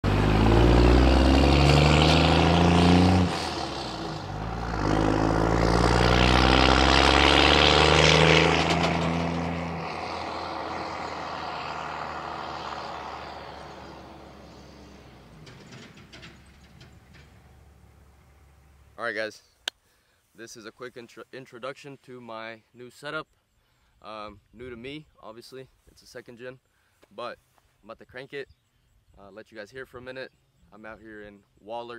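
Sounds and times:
diesel truck engine pulling hard: 0.0 - 19.0.

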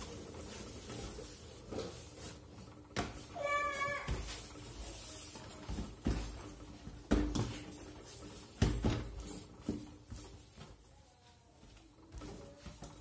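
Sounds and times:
faint rubbing of dough: 0.0 - 8.6.

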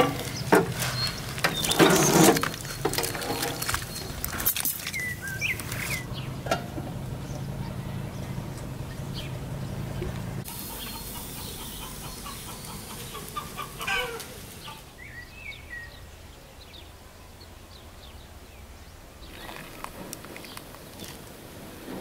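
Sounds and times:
small birds chirping: 0.0 - 21.2
chickens clucking: 5.0 - 15.0.

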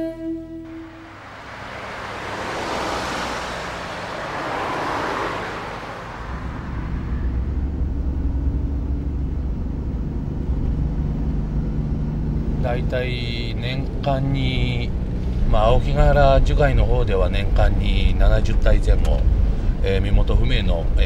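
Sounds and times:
rushing noise: 0.7 - 8.6
van engine rumble from inside cabin: 6.4 - 21.0.

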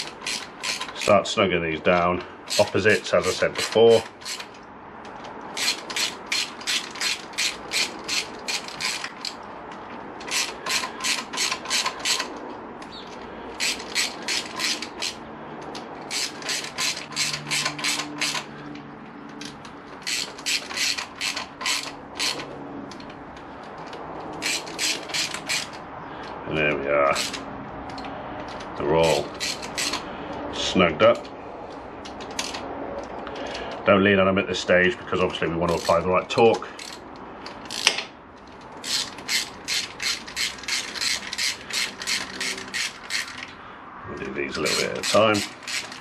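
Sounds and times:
socket ratchet clicking: 0.0 - 1.2, 2.5 - 26.4, 27.1 - 30.1, 32.0 - 33.2, 36.7 - 43.6, 44.6 - 46.0.

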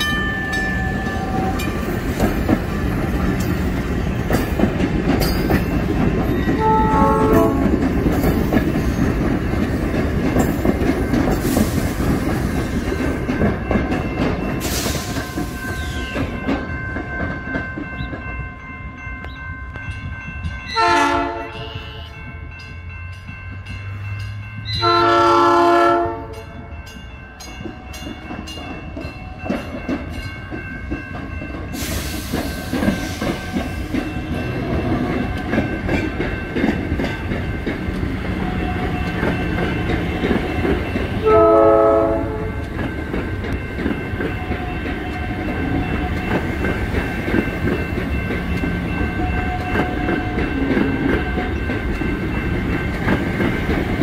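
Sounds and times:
train wheels clattering over rail joints: 0.5 - 18.4, 27.5 - 54.0
train horn blasts: 6.4 - 7.8, 20.7 - 22.2, 24.7 - 26.5, 38.4 - 39.2, 41.2 - 42.6.

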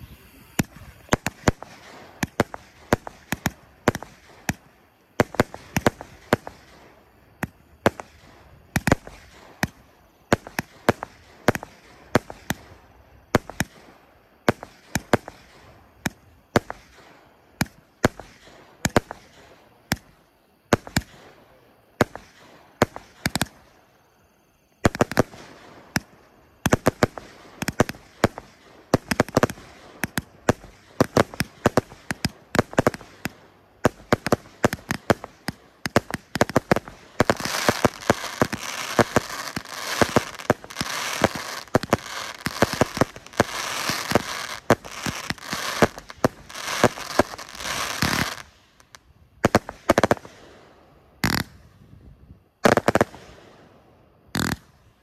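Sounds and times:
fireworks launching and bursting: 0.0 - 55.0.

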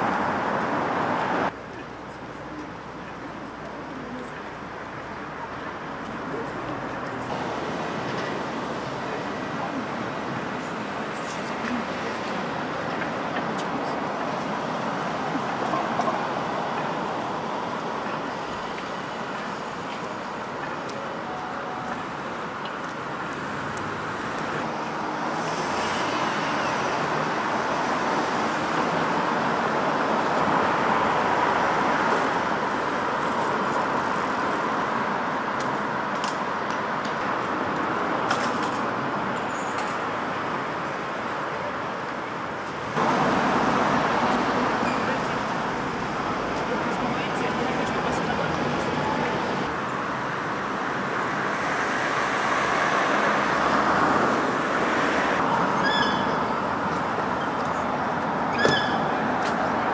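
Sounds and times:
cars driving past: 42.9 - 59.9.

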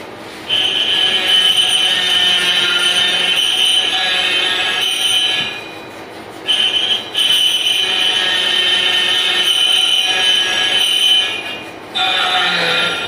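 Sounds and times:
cutting tool screeching on metal: 0.4 - 13.0
metal lathe turning: 0.5 - 13.0.

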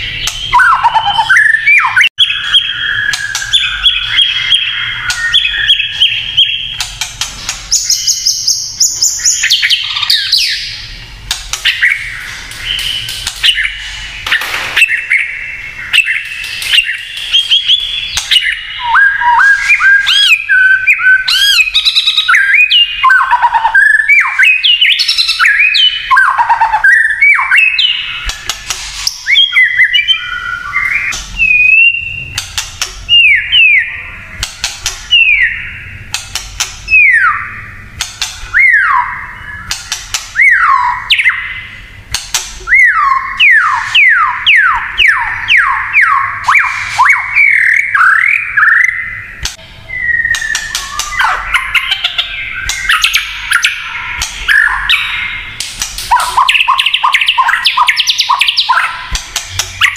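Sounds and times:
bird singing whistled song: 0.0 - 6.9, 7.7 - 10.9, 11.6 - 28.4, 29.0 - 32.4, 33.1 - 34.4, 35.1 - 36.1, 36.9 - 37.8, 38.5 - 41.8, 42.6 - 59.9.

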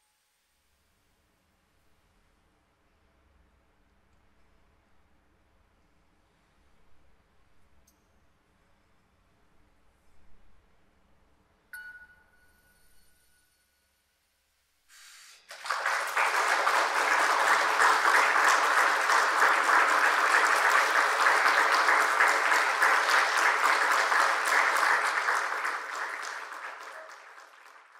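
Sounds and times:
audience applauding: 15.4 - 27.9.

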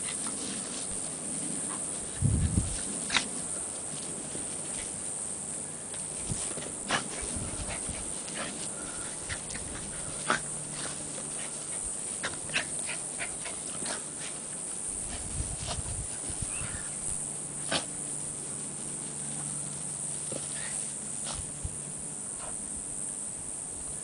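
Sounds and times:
scuffling in dirt and grass: 0.0 - 22.6.

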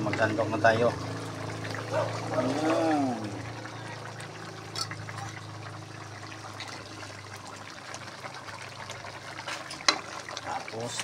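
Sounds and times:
low steady hum: 0.0 - 9.0
stew stirred in a pot: 0.0 - 11.0.

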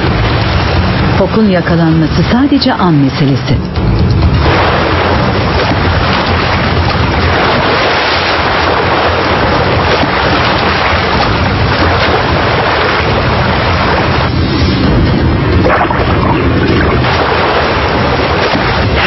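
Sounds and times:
seawater rushing and churning: 0.0 - 19.0.

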